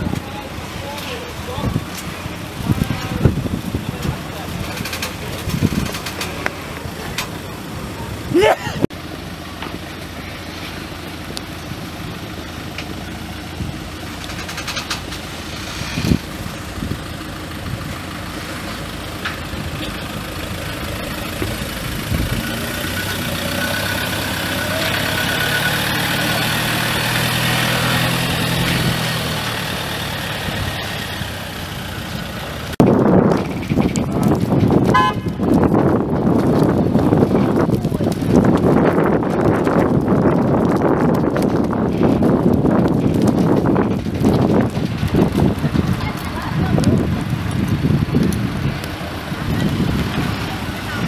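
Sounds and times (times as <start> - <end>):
diesel engine at low revs: 0.0 - 51.0
loud rough sound: 0.0 - 51.0.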